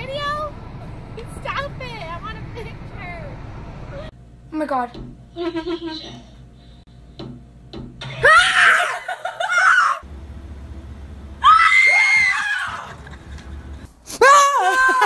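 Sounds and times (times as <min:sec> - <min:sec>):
people screaming in fright: 0:08.1 - 0:10.0, 0:11.4 - 0:13.0, 0:14.2 - 0:15.0.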